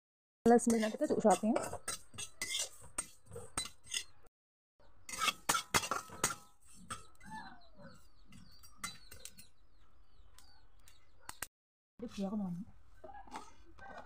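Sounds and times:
metal spatula scraping pan: 0.5 - 4.2, 5.0 - 7.2.

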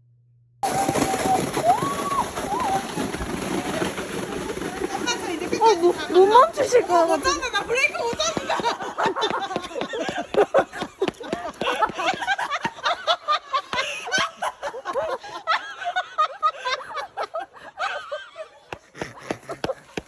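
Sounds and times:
people laughing: 5.6 - 20.0.

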